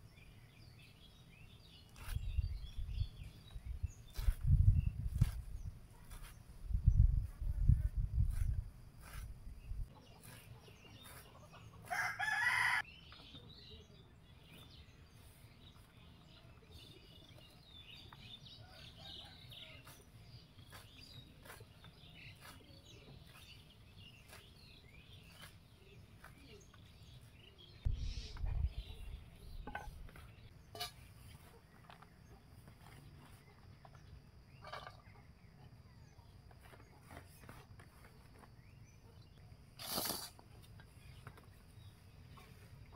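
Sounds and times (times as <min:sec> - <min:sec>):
small birds chirping: 0:00.0 - 0:42.9
rooster crowing: 0:11.9 - 0:12.8
leaves cut on a blade: 0:39.7 - 0:40.5.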